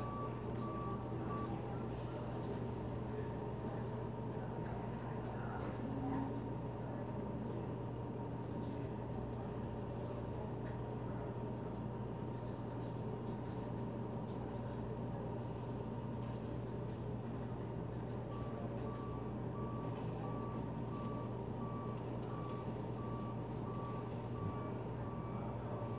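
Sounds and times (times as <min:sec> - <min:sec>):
reversing alarm beeping: 0:00.0 - 0:02.1, 0:18.3 - 0:25.9
diesel truck engine running: 0:00.0 - 0:04.3, 0:15.6 - 0:25.9.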